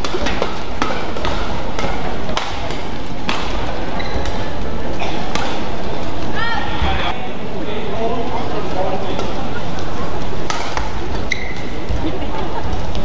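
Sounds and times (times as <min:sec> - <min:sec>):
racket hitting shuttlecock: 0:00.0 - 0:06.3, 0:09.1 - 0:12.2.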